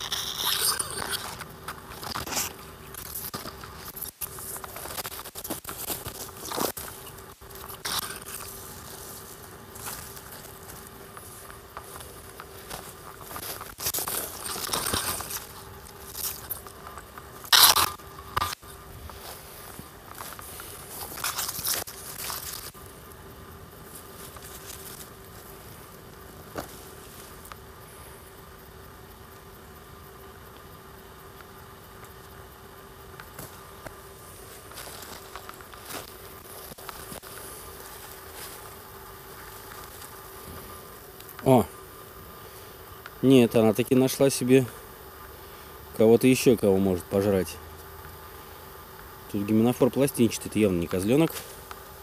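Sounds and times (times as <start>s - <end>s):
brushing against undergrowth: 0.0s - 23.0s, 23.8s - 27.6s, 33.3s - 41.6s
footsteps crunching through dry leaves: 4.4s - 16.8s, 34.2s - 40.6s.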